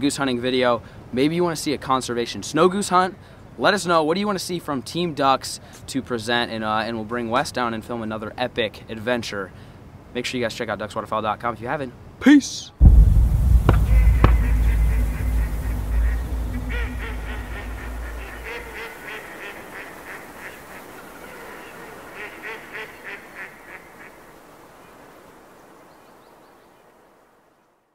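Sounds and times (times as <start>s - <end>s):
deep boom with rumble: 12.8s - 18.8s
geese honking: 13.8s - 19.2s.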